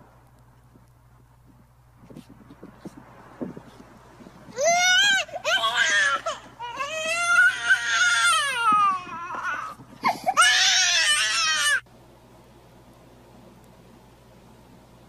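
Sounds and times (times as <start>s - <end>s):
toddler screaming and crying: 4.5s - 11.8s.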